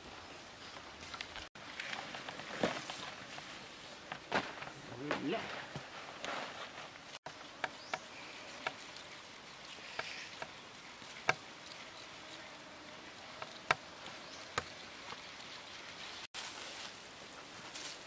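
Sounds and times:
insects buzzing: 7.0s - 16.3s
stalk clicking in a bowl: 7.3s - 11.9s.

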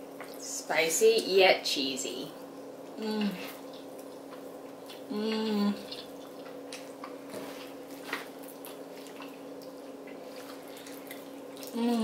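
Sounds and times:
person humming mmm: 3.0s - 3.6s, 5.0s - 6.0s, 11.6s - 12.0s.

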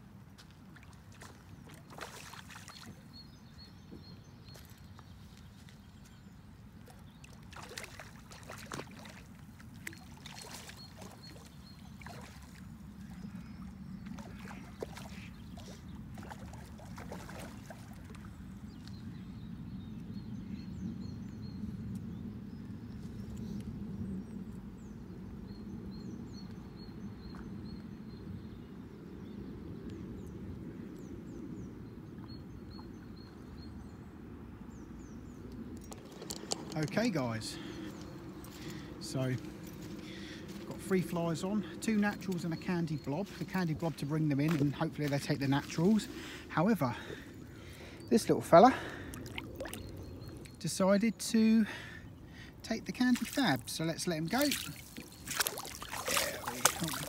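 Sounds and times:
fish splashing and thrashing: 0.8s - 3.0s, 7.2s - 12.6s, 14.1s - 18.3s, 48.8s - 50.6s, 54.4s - 57.0s.

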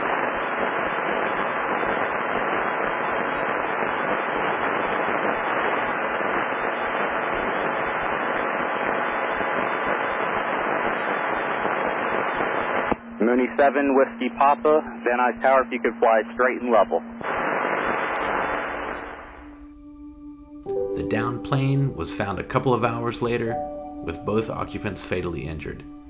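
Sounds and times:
radio static hiss: 0.0s - 19.8s.

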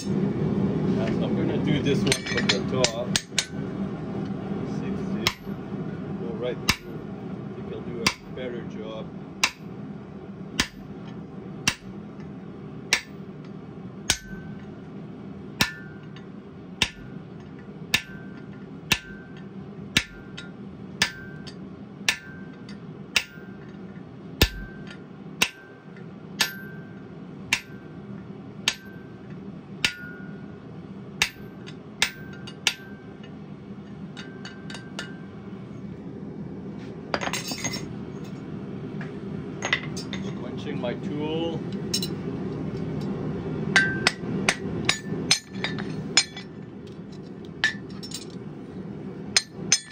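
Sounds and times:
steady low hum: 0.0s - 49.9s
hammer ringing on hot steel: 5.2s - 5.6s, 6.6s - 7.0s, 8.0s - 8.4s, 9.4s - 9.7s, 10.6s - 10.9s, 11.6s - 12.0s, 12.9s - 13.3s, 14.1s - 14.7s, 15.6s - 23.7s, 24.4s - 28.0s, 28.6s - 30.6s, 31.2s - 33.3s, 34.1s - 35.3s, 43.7s - 46.5s, 49.3s - 49.9s.

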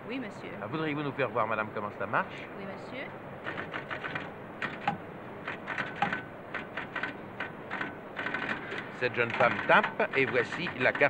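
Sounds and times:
keypunch machine clacking: 3.4s - 11.0s.

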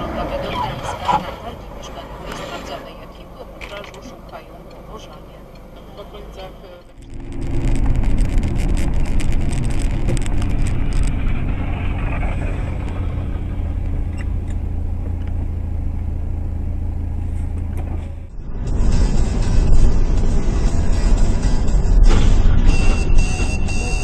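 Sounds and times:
car engine and road noise: 0.0s - 24.0s
sharp clicks and crackles: 6.8s - 16.1s.

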